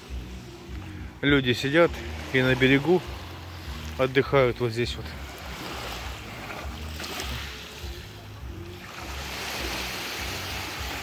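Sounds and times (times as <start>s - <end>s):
waves washing over pebbles: 1.3s - 11.0s.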